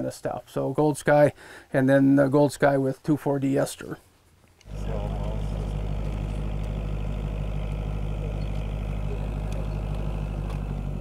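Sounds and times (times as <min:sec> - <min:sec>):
tractor engine running: 0:04.7 - 0:11.0.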